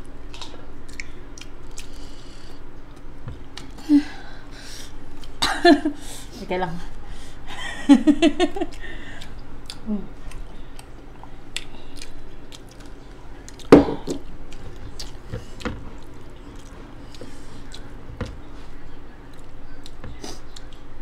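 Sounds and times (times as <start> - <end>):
close chewing: 0.2 - 3.8, 8.6 - 13.7, 14.3 - 21.0.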